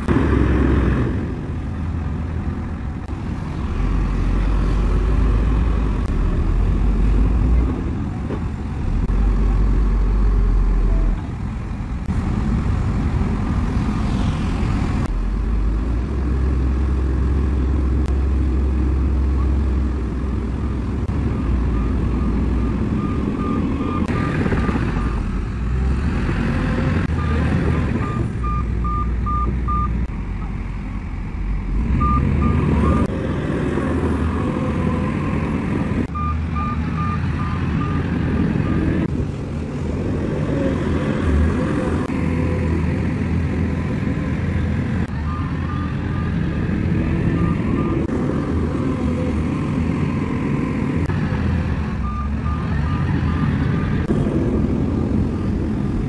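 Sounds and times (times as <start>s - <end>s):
bulldozer diesel engine running: 0.0s - 56.0s
reversing alarm beeping: 21.3s - 25.2s, 32.0s - 33.1s, 36.1s - 38.9s, 47.2s - 48.1s, 52.0s - 53.9s.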